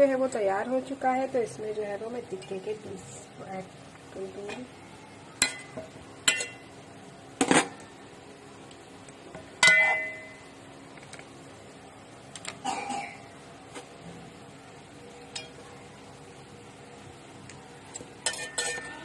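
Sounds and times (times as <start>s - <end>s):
metal ladle clanking on pot: 5.4s - 6.7s, 9.6s - 10.3s, 18.2s - 19.0s.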